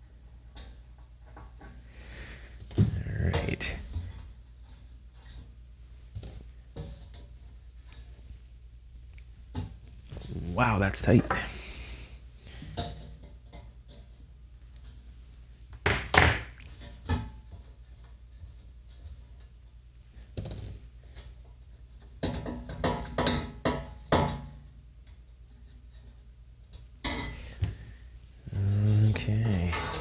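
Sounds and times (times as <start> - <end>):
faint low hum: 25.0 - 30.0.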